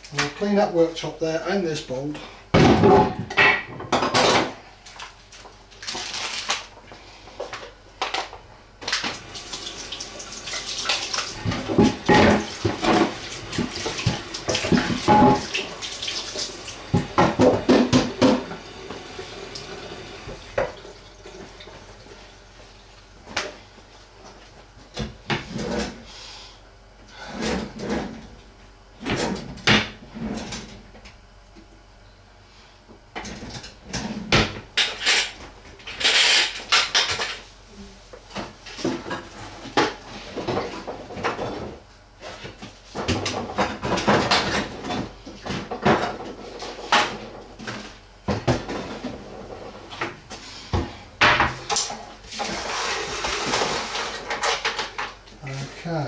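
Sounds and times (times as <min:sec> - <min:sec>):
dishes clattering: 0:14.5 - 0:15.5.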